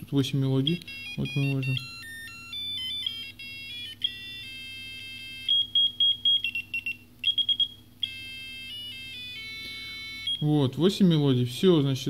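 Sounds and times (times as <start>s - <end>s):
rapid repeated beeps: 0.6s - 4.2s, 5.3s - 8.2s
alarm clock electronic melodies: 0.6s - 10.6s.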